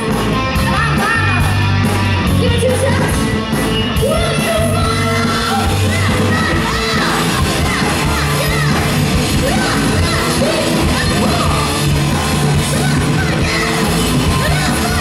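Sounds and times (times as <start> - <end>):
bass guitar: 0.0 - 15.0
drums: 0.0 - 15.0
electric guitar: 0.0 - 15.0
woman singing into a microphone: 4.0 - 15.0.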